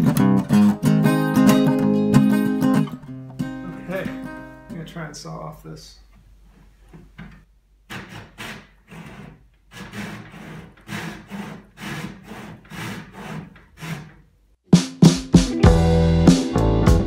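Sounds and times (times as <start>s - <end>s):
strummed acoustic guitar music: 0.0s - 4.8s, 15.1s - 17.0s
hand saw cutting wood: 7.9s - 14.3s.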